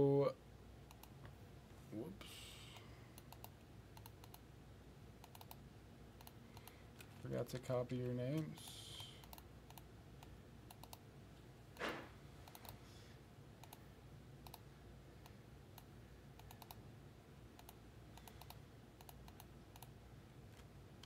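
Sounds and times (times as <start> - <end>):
mouse and keyboard clicks: 16.4 - 16.8.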